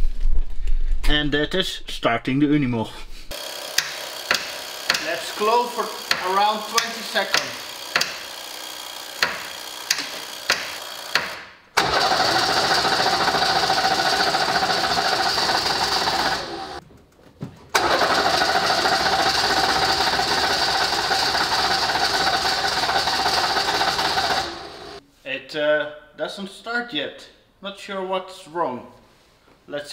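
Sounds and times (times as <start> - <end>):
starter cranking diesel engine: 11.8 - 16.8, 17.8 - 25.0.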